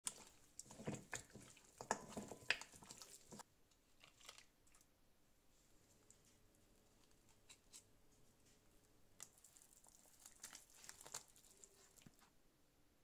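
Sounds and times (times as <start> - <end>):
hands rustling flour on meat: 8.6 - 12.3.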